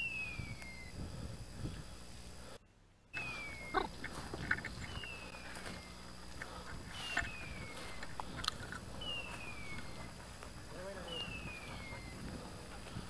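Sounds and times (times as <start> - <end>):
high whistled falling call: 0.0 - 1.0, 3.2 - 4.0, 6.9 - 8.2, 9.0 - 10.1, 11.1 - 12.2
footsteps through brush: 3.2 - 13.0
twigs snapping: 8.0 - 9.0.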